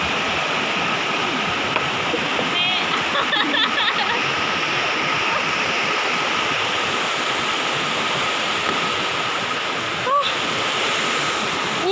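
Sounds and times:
river floodwater rushing: 0.0s - 11.9s.

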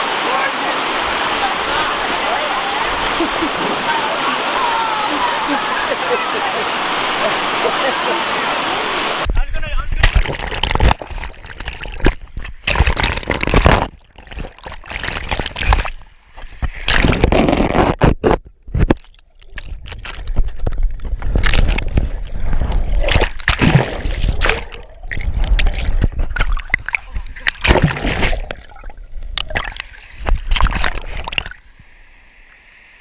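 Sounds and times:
water sloshing and gurgling underwater: 10.0s - 32.8s.

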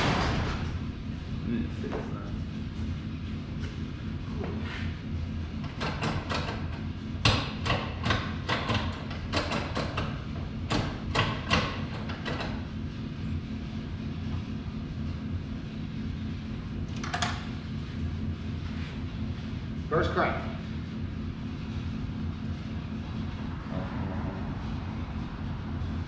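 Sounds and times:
steady low hum: 0.0s - 26.0s
sharp clacks and knocks: 5.6s - 12.7s.

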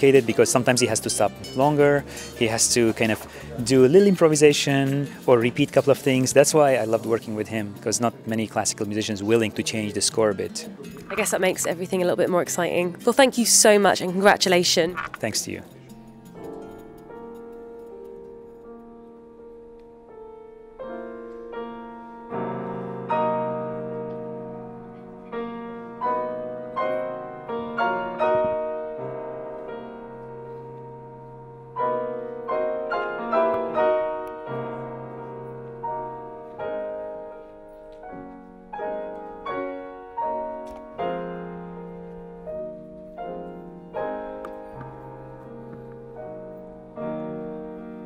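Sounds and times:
slow classical piano: 14.9s - 48.0s.

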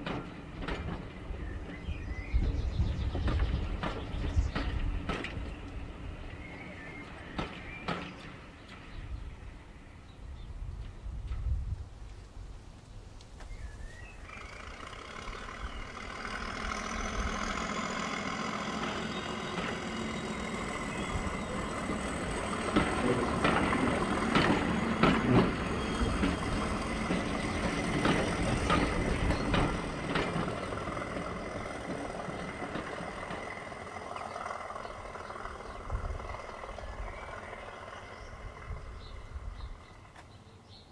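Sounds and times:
model train running: 14.2s - 40.2s
wheels clicking: 14.2s - 40.3s.

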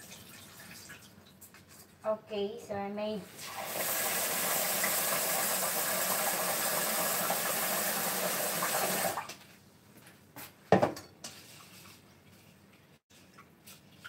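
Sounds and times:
tap running water into pot: 3.4s - 9.3s.

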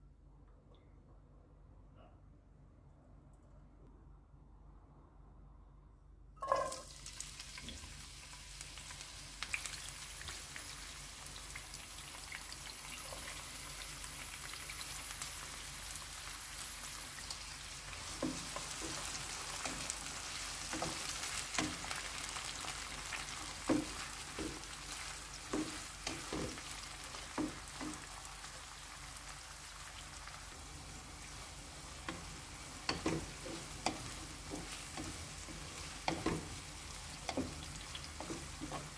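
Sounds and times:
peppers sizzling in hot oil: 6.4s - 38.9s
wooden spatula scraping a pan: 32.1s - 38.9s.

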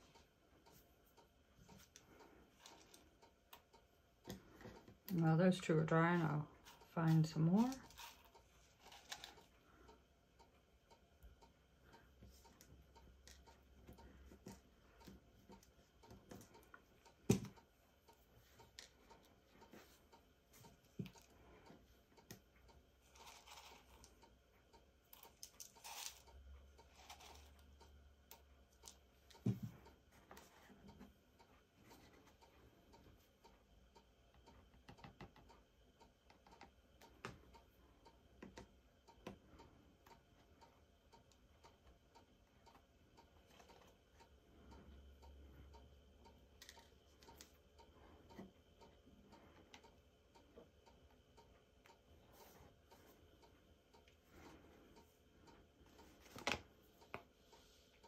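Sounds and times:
faint clicks and taps on tabletop: 10.9s - 26.1s, 34.3s - 35.6s, 36.2s - 40.6s.

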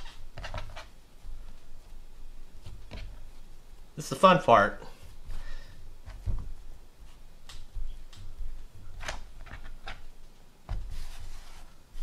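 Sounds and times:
light taps and sticky slaps: 7.4s - 9.7s.

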